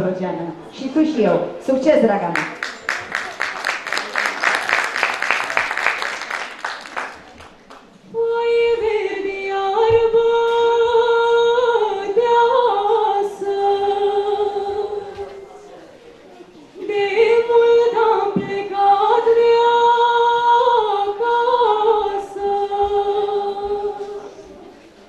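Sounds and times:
audience applause: 0:02.4 - 0:07.9
girl singing folk song: 0:08.1 - 0:15.3.

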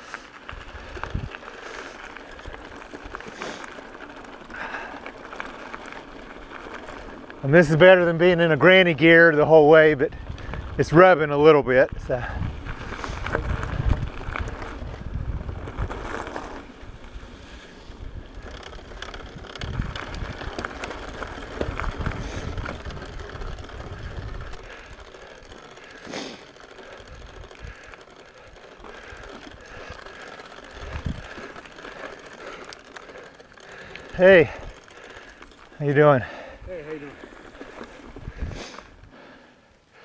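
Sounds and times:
bike tyres crunching on gravel: 0:00.0 - 0:40.0
bike chain ticking and rattling: 0:00.3 - 0:40.0
wind rumble on microphone: 0:00.5 - 0:01.4, 0:10.1 - 0:10.9, 0:11.9 - 0:17.2, 0:17.9 - 0:25.0, 0:30.8 - 0:31.4, 0:38.0 - 0:39.1.

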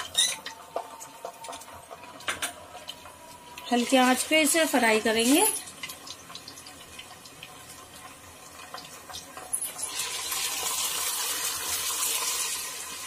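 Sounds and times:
paste sizzling in hot oil: 0:02.8 - 0:13.0.

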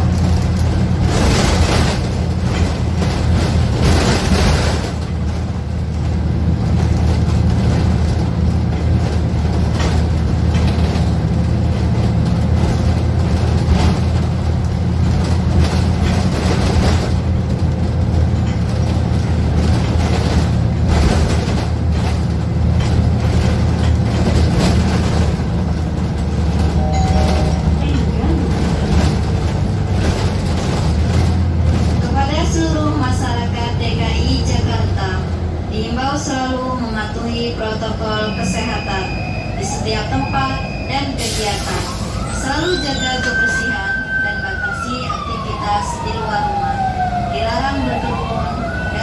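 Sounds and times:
road and body noise: 0:00.0 - 0:33.2
bus engine droning: 0:00.0 - 0:49.0.

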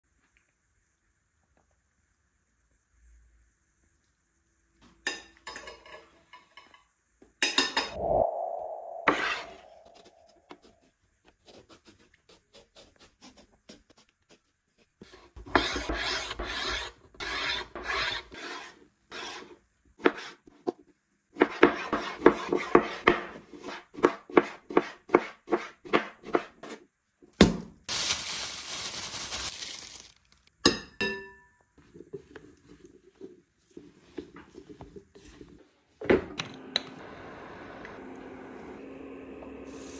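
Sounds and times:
knife rasping on eggplant: 0:11.4 - 0:16.5
rustling: 0:27.9 - 0:30.5.

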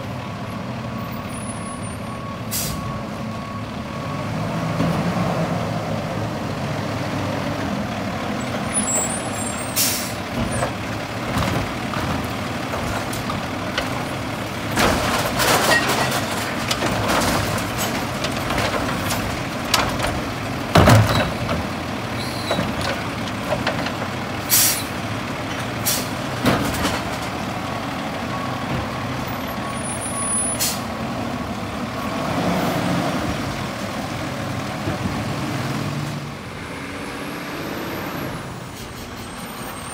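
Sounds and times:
air brake hisses: 0:02.5 - 0:02.9, 0:09.6 - 0:10.2, 0:24.5 - 0:24.9
garbage truck idling: 0:05.9 - 0:32.0
cart banging in hopper: 0:10.3 - 0:24.1.

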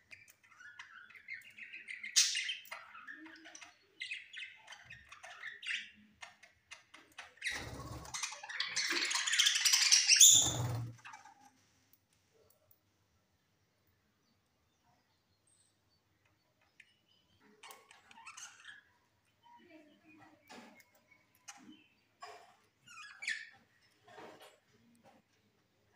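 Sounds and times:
budgerigars chirping and chattering: 0:00.1 - 0:11.5.

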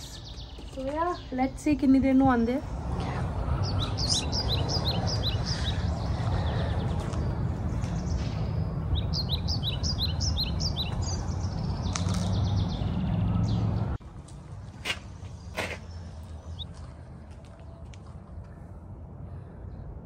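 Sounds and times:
songbird singing: 0:00.0 - 0:02.4, 0:03.0 - 0:14.0, 0:15.3 - 0:17.0
steady low rumble: 0:01.3 - 0:13.0.

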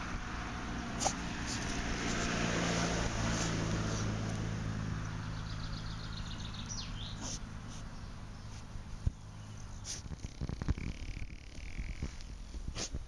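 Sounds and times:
engine humming: 0:00.0 - 0:13.0
dog snuffling in soil: 0:00.9 - 0:04.2, 0:07.1 - 0:13.0.

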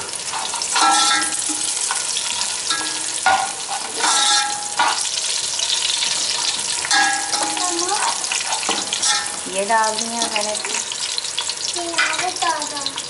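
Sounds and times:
onions and spices sizzling in oil: 0:00.0 - 0:13.0
metal spatula scraping a pot: 0:00.2 - 0:05.2, 0:08.3 - 0:09.4.

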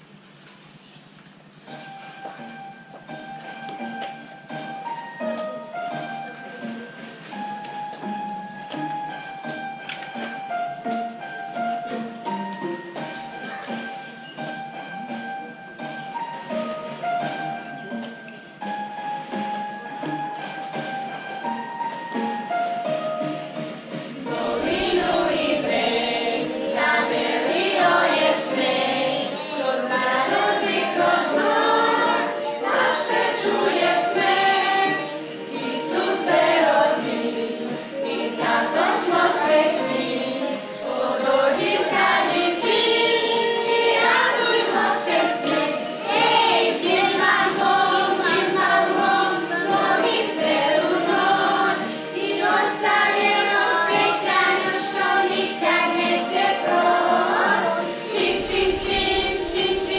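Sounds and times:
children's and women's choir singing: 0:23.3 - 0:59.9.

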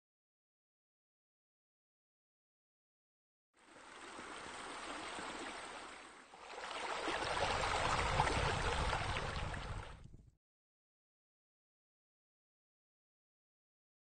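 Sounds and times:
water running and splashing: 0:03.7 - 0:10.0.

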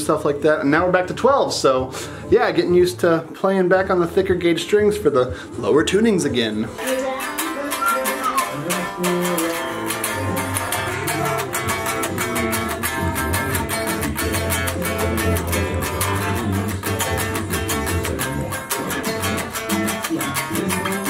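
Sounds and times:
electric guitar riff: 0:06.7 - 0:21.0.

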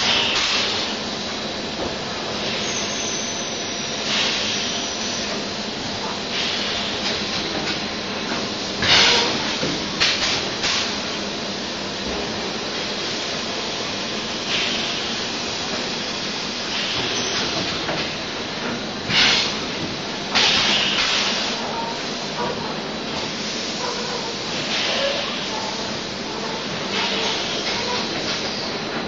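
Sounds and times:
machine mechanical hum: 0:00.0 - 0:29.0
compressed air hisses: 0:23.2 - 0:23.8.

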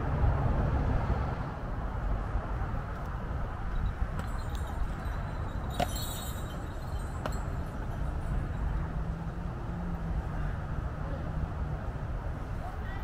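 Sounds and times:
carriage ride rumble: 0:03.4 - 0:10.9.

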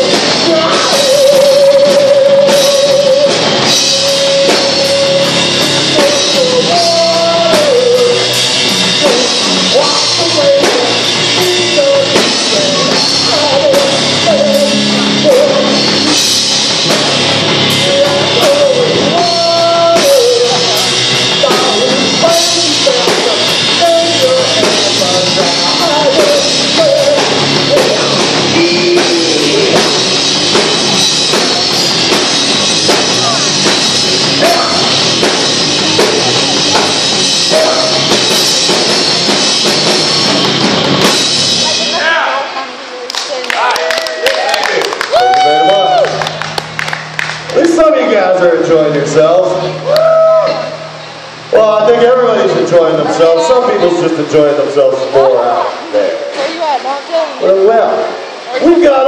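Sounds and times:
man singing into microphone: 0:00.0 - 0:16.2, 0:17.6 - 0:30.0, 0:37.5 - 0:38.6
live rock band playing: 0:00.0 - 0:42.9, 0:44.8 - 0:57.5.

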